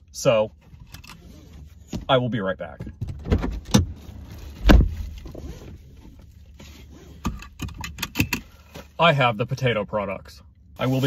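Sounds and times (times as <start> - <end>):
dull thump: 4.6 - 5.4.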